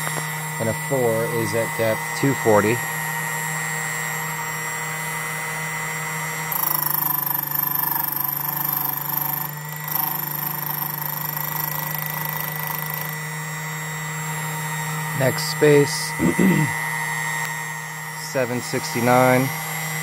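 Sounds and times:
machine motor humming: 0:00.0 - 0:20.0
cutter cutting key: 0:06.5 - 0:13.3.

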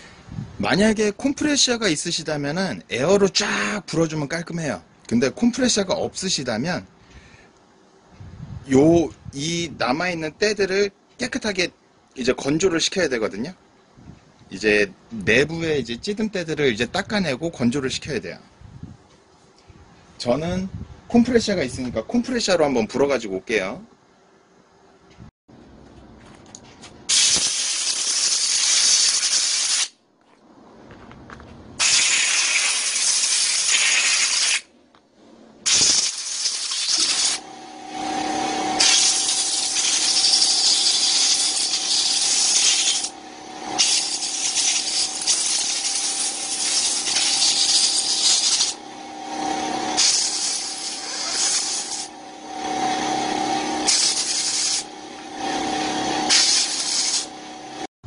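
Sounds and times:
compressed air blow gun hissing: 0:27.1 - 0:29.9, 0:31.8 - 0:34.7, 0:35.7 - 0:37.4, 0:38.8 - 0:43.1, 0:43.8 - 0:48.8, 0:50.0 - 0:52.1, 0:53.8 - 0:54.9, 0:56.3 - 0:57.3
steady hum: 0:34.6 - 0:57.9.

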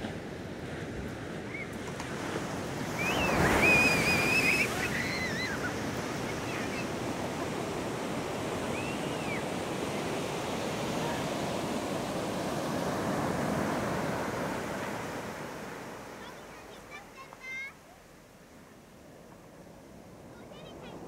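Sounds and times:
surf breaking on a beach: 0:00.0 - 0:21.0
child's faint high cry: 0:03.6 - 0:07.0.

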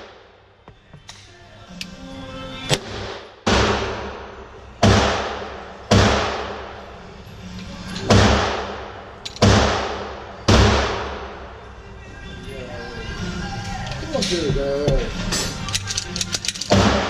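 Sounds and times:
gunshots echoing: 0:02.7 - 0:06.8, 0:08.0 - 0:11.6, 0:16.6 - 0:17.0.

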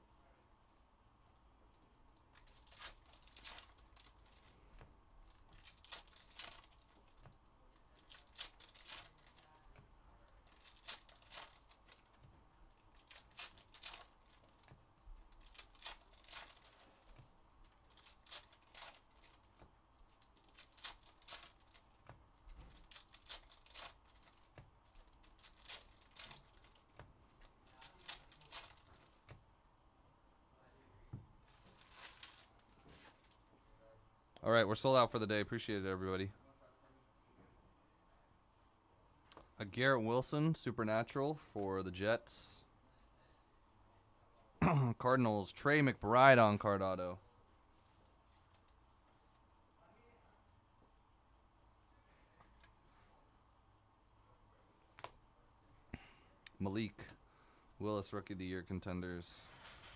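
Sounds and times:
foil packs tearing and crinkling: 0:02.3 - 0:04.6, 0:05.2 - 0:07.2, 0:07.9 - 0:09.5, 0:10.4 - 0:12.2, 0:12.8 - 0:14.7, 0:15.3 - 0:19.6, 0:20.2 - 0:27.0, 0:27.6 - 0:29.2, 0:31.5 - 0:33.3.

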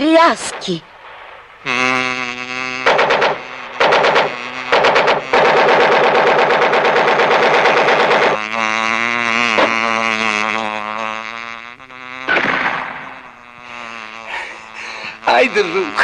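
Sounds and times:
beetle wings buzzing drone: 0:00.0 - 0:16.0
sharp bangs: 0:00.1 - 0:08.5, 0:12.3 - 0:13.4
rapid machine-gun rattling: 0:02.9 - 0:08.4.

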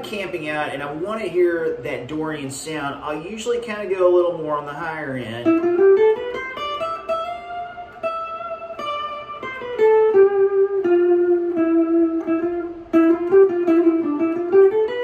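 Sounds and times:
electric guitar single-note line: 0:04.2 - 0:15.0.

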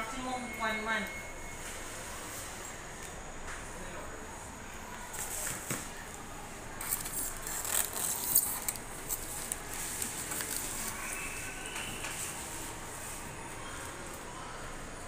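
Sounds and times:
plastic wrapping crinkling: 0:06.8 - 0:12.8.

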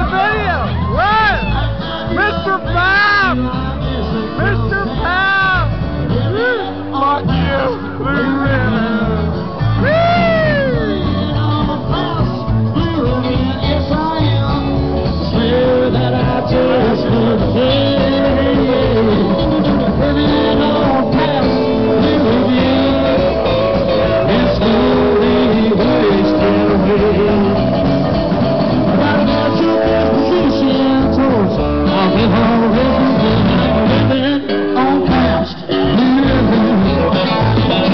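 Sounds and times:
live rock band playing: 0:00.0 - 0:37.9
person singing: 0:01.5 - 0:37.9.

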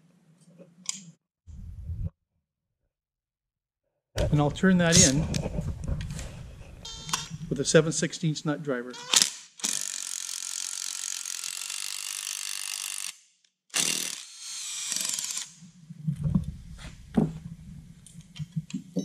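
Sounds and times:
cordless impact driver running: 0:09.1 - 0:13.2, 0:13.8 - 0:15.5.

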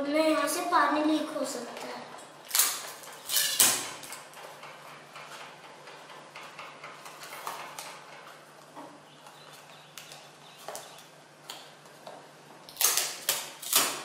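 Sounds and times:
tape ripping off dispenser: 0:02.5 - 0:04.3, 0:12.7 - 0:14.0.

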